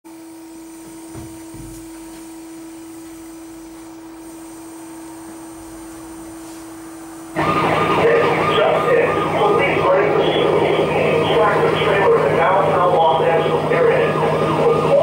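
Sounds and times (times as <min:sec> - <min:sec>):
steady electrical hum: 0:00.1 - 0:15.0
loud recording through speaker: 0:07.4 - 0:15.0.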